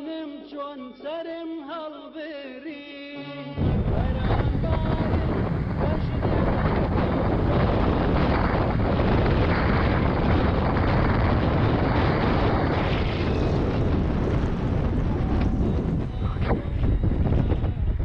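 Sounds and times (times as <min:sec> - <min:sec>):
wind rush on microphone: 0:03.6 - 0:18.0.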